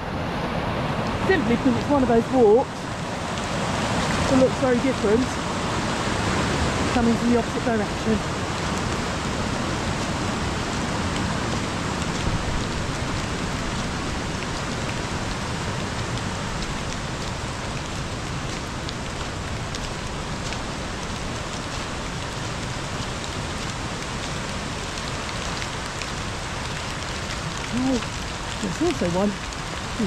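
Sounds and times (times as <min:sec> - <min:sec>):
fast-flowing river water rushing: 0:00.0 - 0:12.0.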